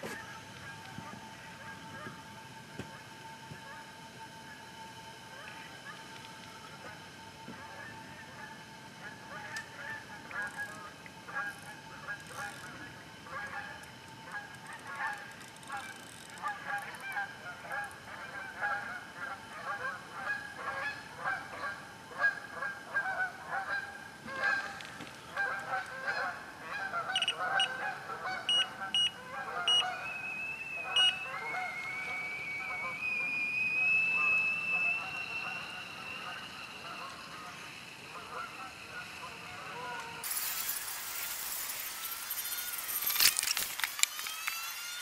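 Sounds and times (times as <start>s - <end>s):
geese honking: 7.6s - 30.2s, 30.8s - 33.1s, 34.2s - 40.2s
short electronic beeps: 27.2s - 27.7s, 28.5s - 31.3s.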